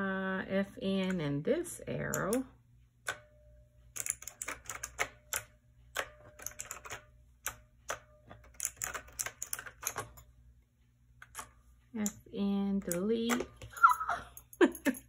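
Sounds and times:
mechanical keyboard keys clacking: 4.0s - 10.2s.

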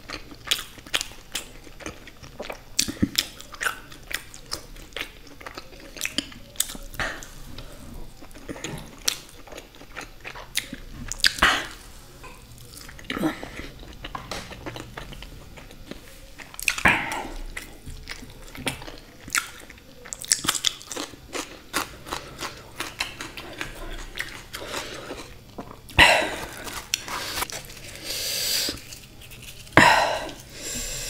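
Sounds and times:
close chewing with wet smacks: 0.0s - 7.3s, 8.1s - 11.8s, 12.5s - 27.6s
crunchy bites: 12.6s - 28.0s.

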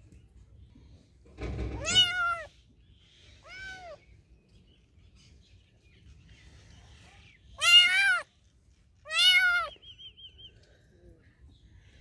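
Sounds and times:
kitten meowing: 1.8s - 2.5s, 3.4s - 4.0s, 7.6s - 8.3s, 9.1s - 9.8s.

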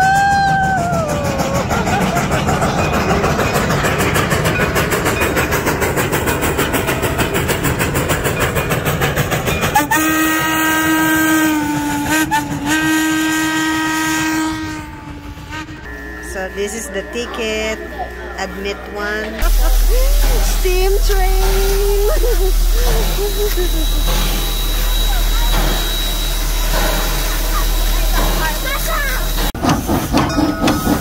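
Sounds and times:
steam locomotive exhaust chuffing: 0.0s - 31.0s
steam whistle long blast: 9.8s - 16.7s.

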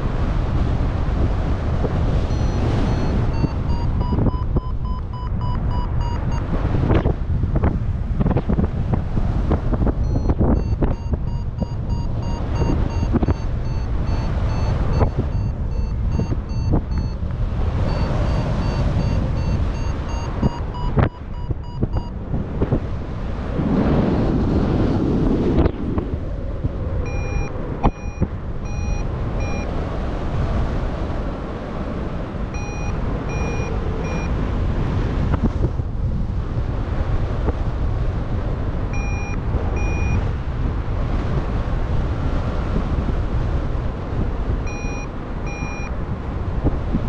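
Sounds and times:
wind rushing over microphone: 0.0s - 47.0s
variometer beeping: 2.3s - 7.0s, 9.9s - 22.2s, 27.0s - 29.8s, 32.5s - 34.5s, 38.9s - 40.3s, 44.6s - 46.0s.

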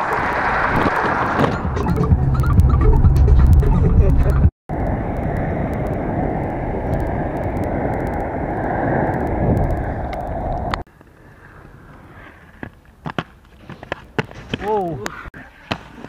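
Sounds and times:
skate wheels rolling on asphalt: 0.0s - 1.4s, 4.7s - 16.0s
wind on microphone: 3.4s - 10.9s.

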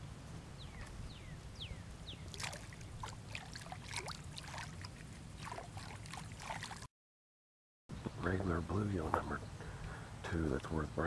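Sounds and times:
water splashing and dripping: 2.3s - 6.9s.

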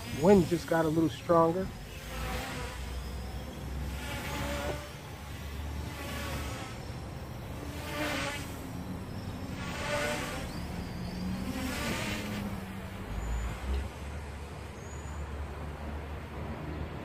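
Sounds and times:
vehicles passing: 0.0s - 17.0s.

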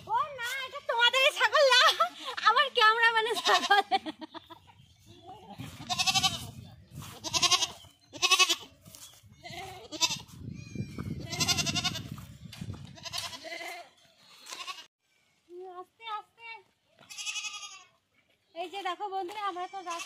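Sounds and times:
young goat bleating: 3.2s - 3.9s, 5.6s - 12.2s, 12.9s - 14.9s, 17.0s - 18.0s, 19.5s - 20.0s.

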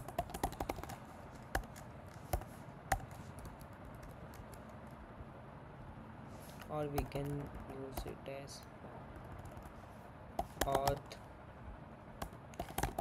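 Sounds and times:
keyboard typing: 0.0s - 5.0s, 6.8s - 8.1s, 9.2s - 9.8s, 10.4s - 11.2s, 12.2s - 13.0s.

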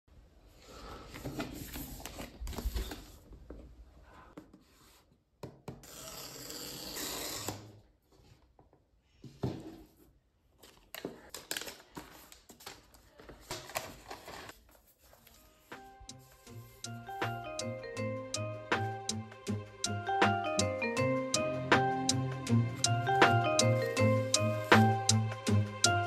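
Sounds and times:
paper wrapping rustling: 10.6s - 16.8s.

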